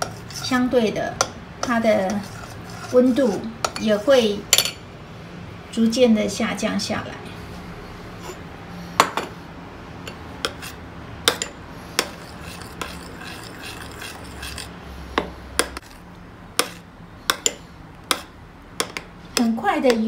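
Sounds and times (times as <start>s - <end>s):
spoon scraping bowl: 0.0s - 0.7s, 1.6s - 4.2s, 10.1s - 16.0s.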